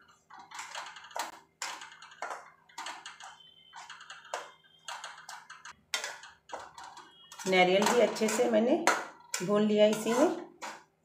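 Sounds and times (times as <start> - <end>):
steel spatula scraping a pan: 9.4 - 10.4.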